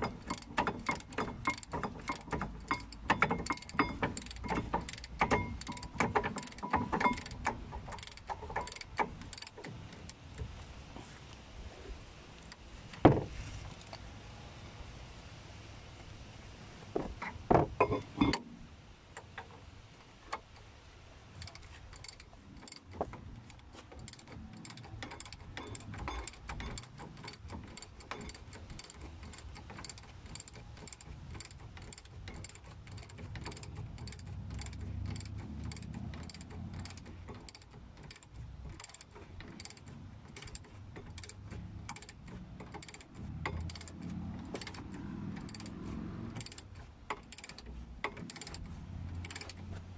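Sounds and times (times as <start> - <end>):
ratchet wrench clicking: 0.0 - 10.5, 21.4 - 49.9.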